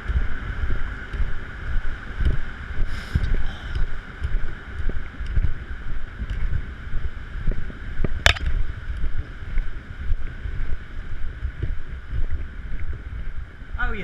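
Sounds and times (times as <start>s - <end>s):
faint steady hum: 0.0s - 14.0s
wind buffeting microphone: 0.0s - 14.0s
sharp click: 8.3s - 8.5s.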